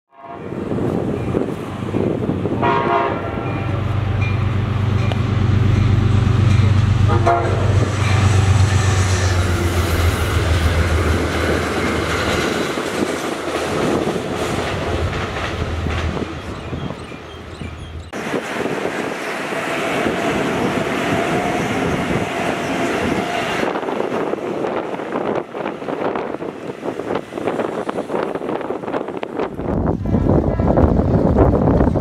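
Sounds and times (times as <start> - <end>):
train horn blasts: 0.1 - 0.8, 2.5 - 5.1, 6.4 - 10.0
wheels rushing on rail: 0.2 - 32.0
locomotive engine drone: 0.5 - 31.9.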